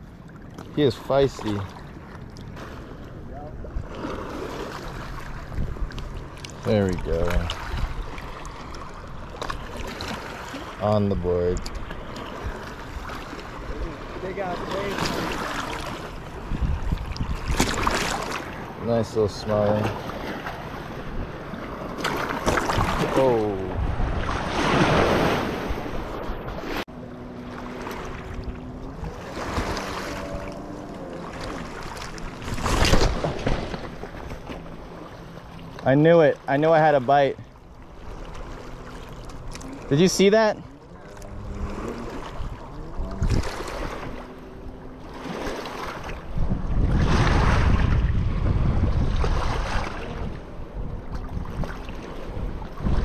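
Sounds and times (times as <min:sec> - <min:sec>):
small waves lapping on rocks: 0:00.0 - 0:26.8, 0:27.4 - 0:48.2, 0:48.8 - 0:50.4
wind buffeting microphone: 0:03.3 - 0:08.2, 0:16.2 - 0:18.8, 0:20.1 - 0:26.8, 0:41.2 - 0:44.7, 0:46.0 - 0:53.0
waves splashing on rocks: 0:12.3 - 0:16.1.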